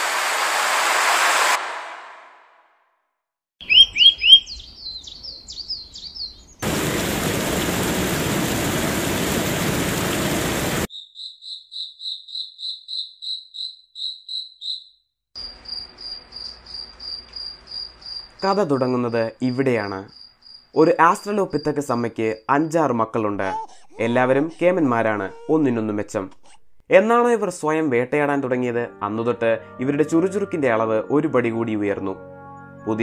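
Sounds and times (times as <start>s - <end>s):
bird chirping: 3.6s - 6.6s, 10.9s - 18.9s, 19.5s - 24.6s
crickets chirping: 10.9s - 22.8s
high cricket trill: 10.9s - 22.9s.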